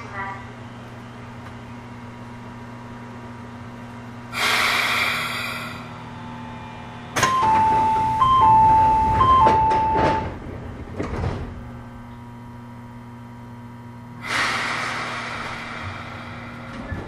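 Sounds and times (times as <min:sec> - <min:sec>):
train low hum: 0:00.0 - 0:17.0
train air hiss: 0:04.3 - 0:06.0, 0:14.2 - 0:16.7
two-note door chime: 0:07.2 - 0:10.3
sliding doors shutting knocks: 0:07.2 - 0:11.7.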